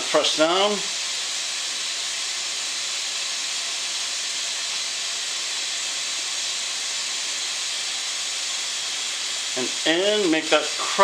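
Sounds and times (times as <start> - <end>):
water running from a tap: 0.0 - 11.0.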